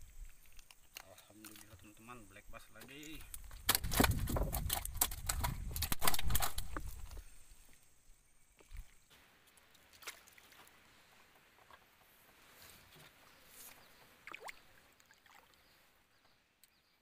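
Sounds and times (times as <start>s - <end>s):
fish flapping against boat: 3.5s - 7.1s.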